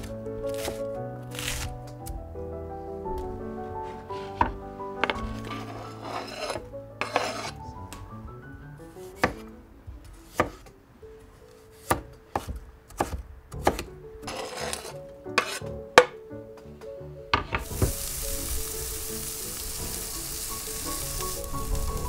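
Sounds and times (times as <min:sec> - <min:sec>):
background music with melody: 0:00.0 - 0:22.0
scraping: 0:03.8 - 0:07.6, 0:14.3 - 0:15.7.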